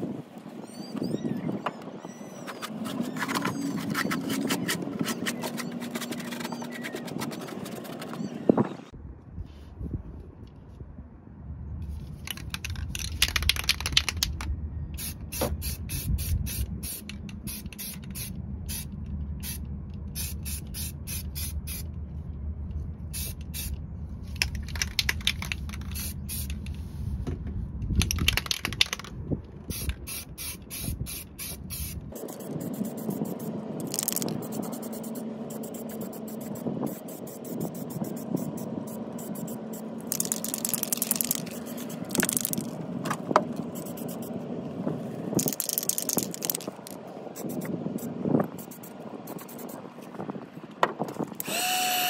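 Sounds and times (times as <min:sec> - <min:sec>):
low rumble: 0:14.2 - 0:24.7.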